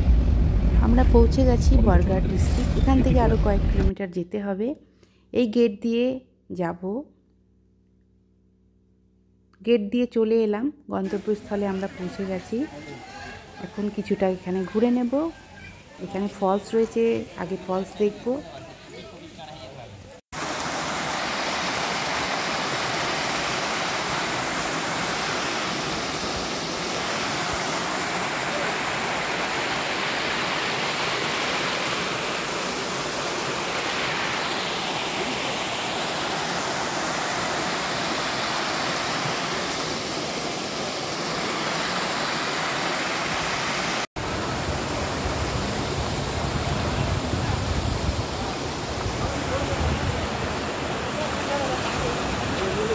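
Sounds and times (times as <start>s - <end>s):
waterfall rushing: 20.4s - 52.9s.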